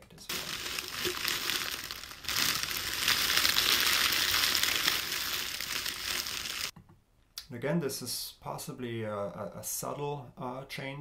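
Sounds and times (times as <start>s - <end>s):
plastic crunching and crinkling: 0.2s - 6.8s.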